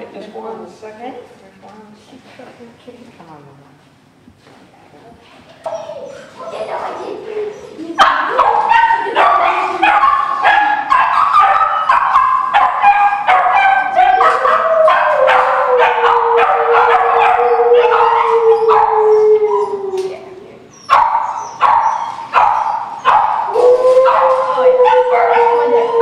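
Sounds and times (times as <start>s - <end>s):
dogs barking and yipping: 5.6s - 20.0s, 20.7s - 26.0s
dog howling: 5.7s - 20.5s, 21.2s - 26.0s.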